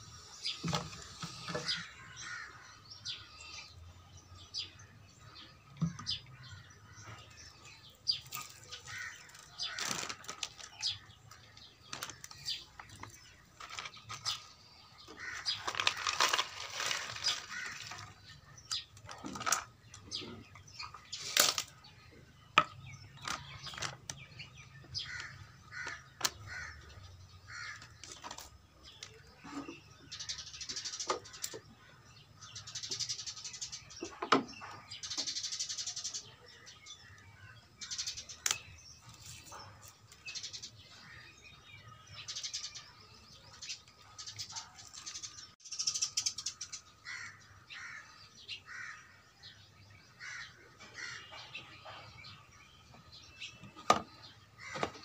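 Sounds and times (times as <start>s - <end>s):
birds chirping: 0.0s - 55.0s
crow calls: 1.4s - 3.6s, 8.7s - 11.0s, 15.0s - 18.8s, 24.9s - 28.5s, 46.0s - 52.2s, 53.9s - 55.0s.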